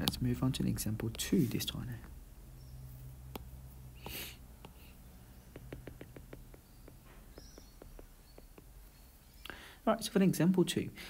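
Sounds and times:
stylus tapping on glass screen: 3.3s - 4.8s, 5.4s - 8.8s
soft breath: 9.4s - 9.8s.

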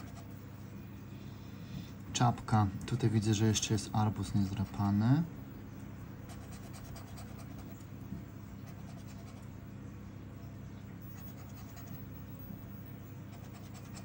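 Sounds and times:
scratch card scratching: 6.3s - 7.9s, 8.6s - 9.4s, 11.1s - 12.2s, 13.2s - 14.0s.

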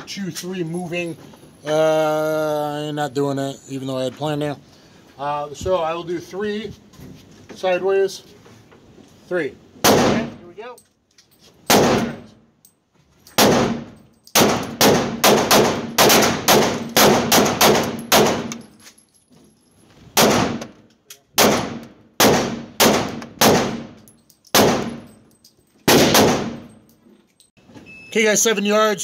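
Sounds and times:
pistol shots echoing indoors: 11.7s - 12.2s, 13.4s - 18.6s, 25.9s - 26.6s.

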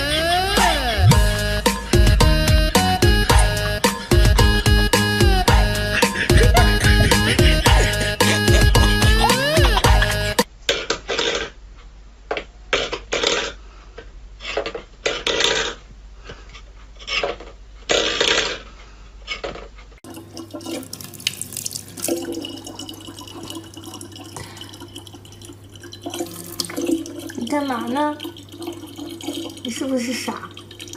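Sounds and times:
tap water running into bottle: 20.0s - 30.9s.

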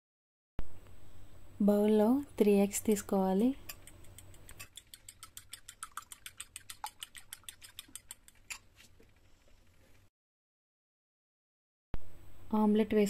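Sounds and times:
fork clicking against glass bowl: 3.6s - 8.6s.

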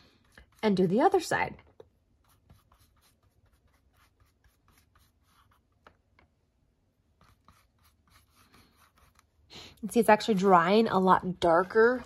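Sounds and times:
paintbrush strokes on cardboard: 0.0s - 6.0s, 6.9s - 9.5s.

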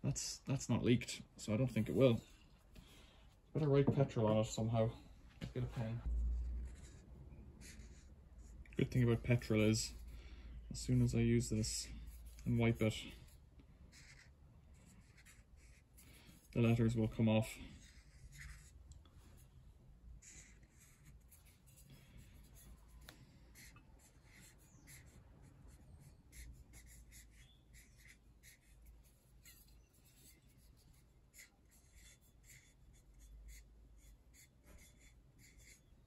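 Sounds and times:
marker pen squeaking on metal: 23.6s - 25.2s, 26.3s - 36.0s.

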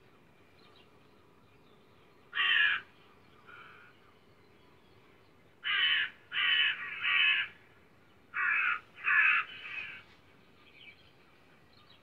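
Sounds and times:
crow cawing: 2.3s - 2.9s, 3.5s - 3.9s, 5.6s - 7.6s, 8.3s - 10.0s.

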